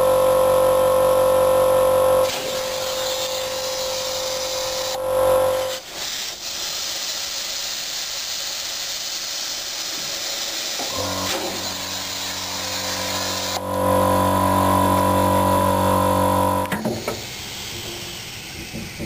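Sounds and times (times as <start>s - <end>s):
steady machine hum: 0.0s - 5.8s, 10.8s - 18.7s
compressed air hissing: 5.6s - 13.8s, 17.0s - 19.0s.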